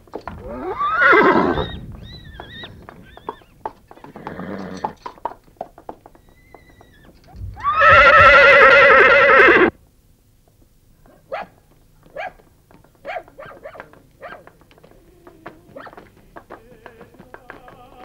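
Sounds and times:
horse whinnying: 0.4s - 5.1s, 6.2s - 9.7s.

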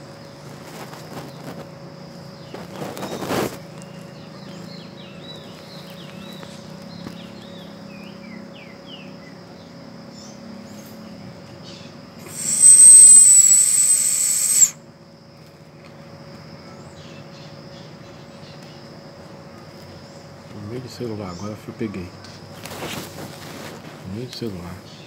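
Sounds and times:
animal whistling buzz: 12.2s - 14.8s.

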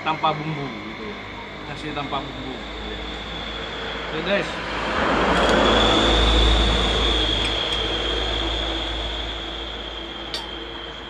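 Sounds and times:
vehicle passing by: 3.4s - 10.2s.

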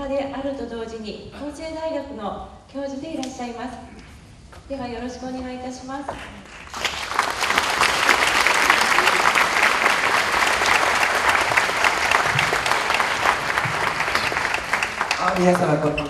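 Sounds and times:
audience applauding: 6.4s - 16.0s.

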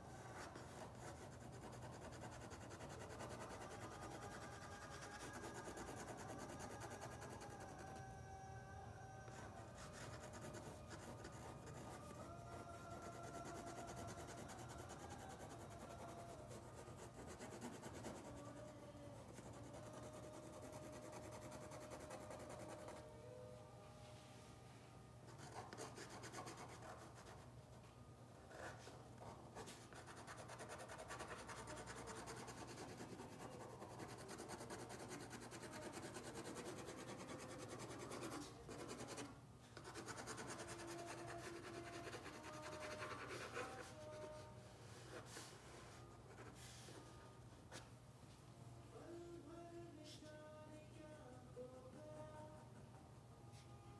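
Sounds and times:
art tool scratching paper: 0.3s - 8.0s, 9.5s - 18.7s, 29.6s - 44.4s.

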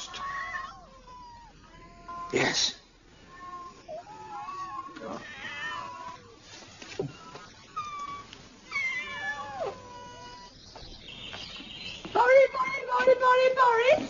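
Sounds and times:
cats meowing: 0.0s - 10.6s.

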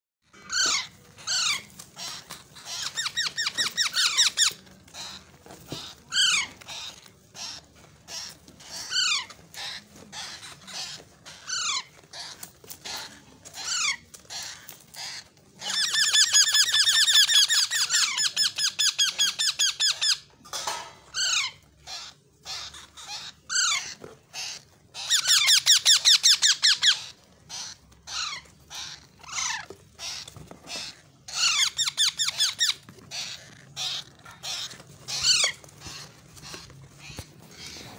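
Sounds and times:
rapid harsh repeated calls: 0.3s - 20.2s
parakeet chicks squeaky calls: 0.3s - 37.9s.

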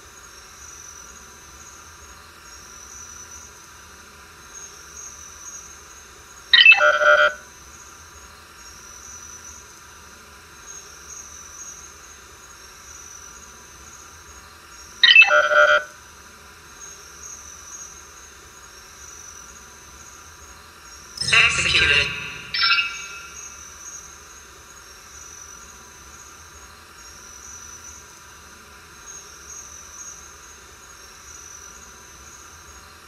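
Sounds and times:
cricket-like hiss: 0.0s - 6.5s, 7.7s - 15.0s, 16.6s - 21.2s, 23.5s - 33.0s
electronic sci-fi chimes: 21.2s - 23.8s
thin high tone: 21.2s - 23.8s.

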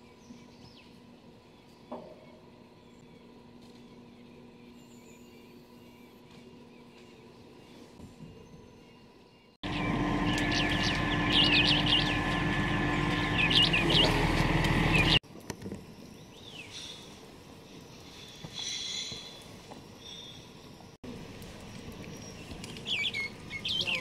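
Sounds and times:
small birds chirping: 0.0s - 15.2s, 22.0s - 24.0s
low rumble and hum: 9.6s - 15.2s.

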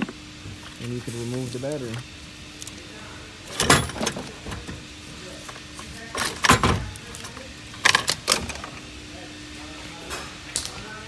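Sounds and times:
car parts clunking and scraping: 3.5s - 7.0s.

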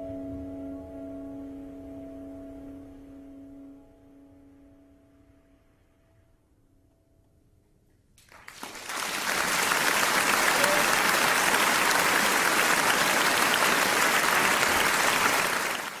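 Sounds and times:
applause: 8.2s - 16.0s.

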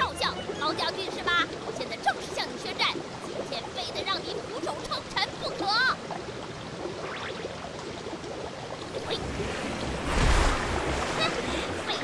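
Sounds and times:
water rushing and lapping: 0.0s - 12.0s
low rumble of waves: 8.8s - 12.0s.

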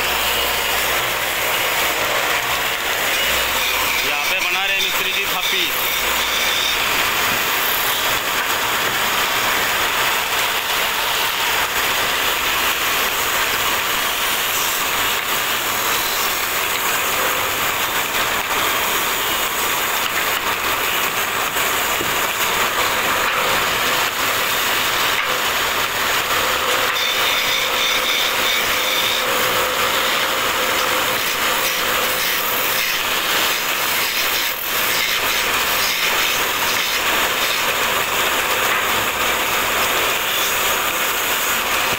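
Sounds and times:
chisel scraping wood on lathe: 26.7s - 37.7s.

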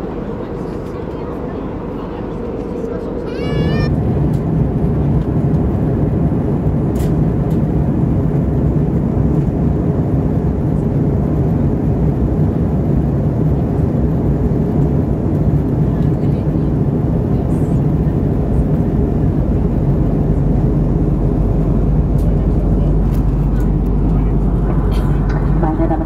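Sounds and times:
airplane cabin engine roar: 0.0s - 26.0s
low hum: 18.3s - 26.0s.

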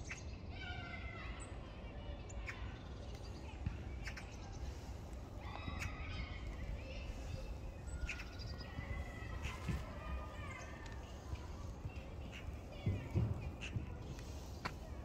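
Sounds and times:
distant high-pitched calls: 4.0s - 15.0s.

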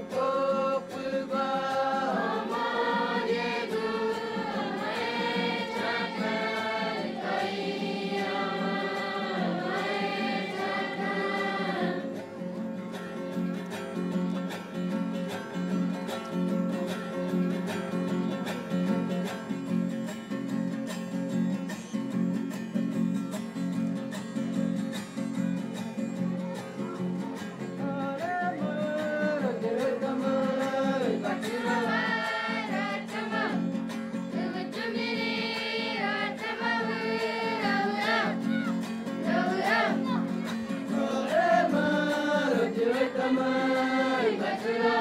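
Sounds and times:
high voices singing together: 0.0s - 12.2s, 28.2s - 45.0s
acoustic guitar strumming: 0.0s - 45.0s.

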